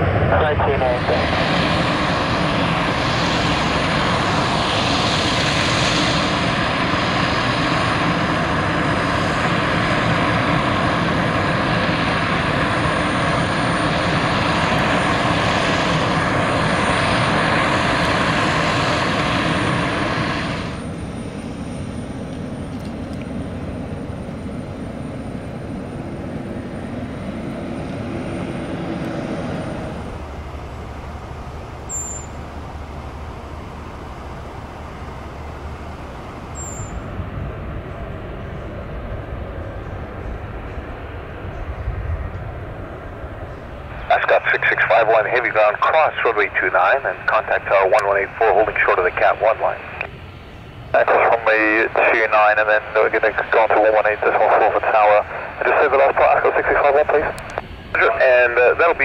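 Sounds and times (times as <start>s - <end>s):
turboprop engines droning: 0.0s - 59.0s.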